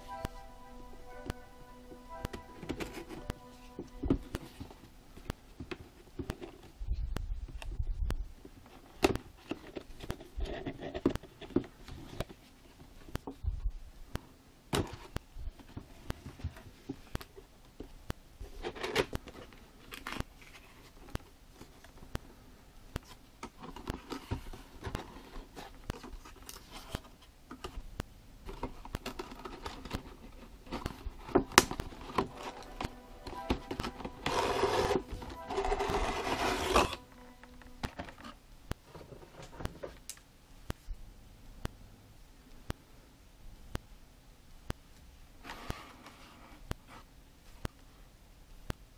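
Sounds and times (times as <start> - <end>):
cardboard rustling and scraping: 23.1 - 27.3, 28.5 - 37.0.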